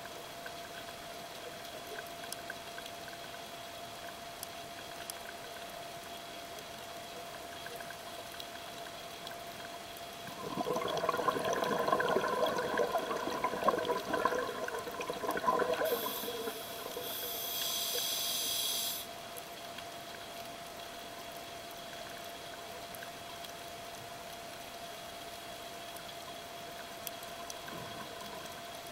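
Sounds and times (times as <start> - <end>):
faint steady tone: 0.0 - 28.9
exhaled bubbles gurgling underwater: 10.2 - 17.4
hissing regulator inhale: 15.7 - 19.1.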